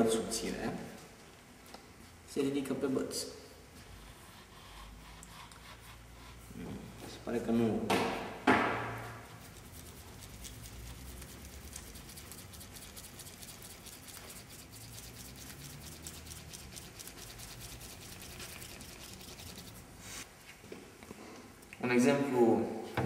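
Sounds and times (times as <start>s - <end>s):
stick twirling in thick mixture: 8.8s - 20.3s.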